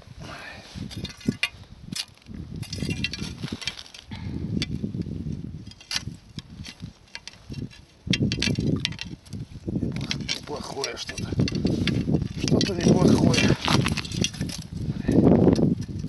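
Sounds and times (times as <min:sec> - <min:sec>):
fishing line handling and rustling: 0:00.0 - 0:15.0
low rumbles and bumps: 0:07.4 - 0:16.0.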